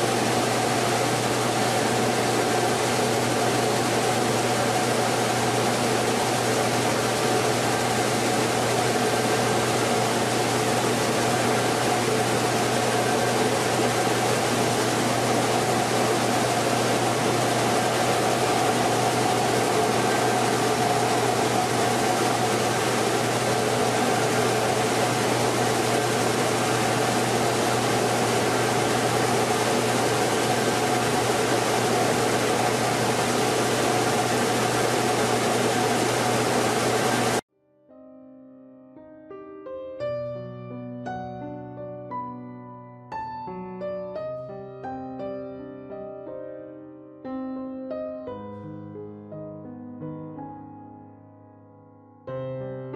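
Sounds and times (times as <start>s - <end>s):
rice mill machinery humming: 0.0s - 37.4s.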